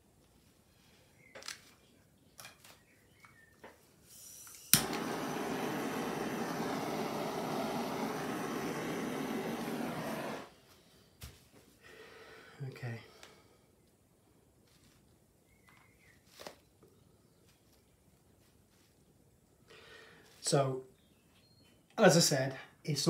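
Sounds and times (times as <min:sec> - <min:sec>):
air blower blowing: 0:04.2 - 0:10.5
air blower click: 0:04.5 - 0:10.5.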